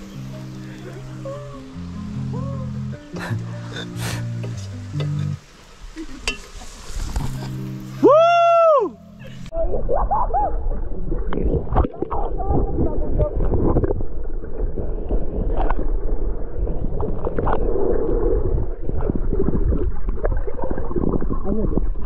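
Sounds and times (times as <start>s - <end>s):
muffled underwater rumbling and bubbling: 9.2s - 22.0s.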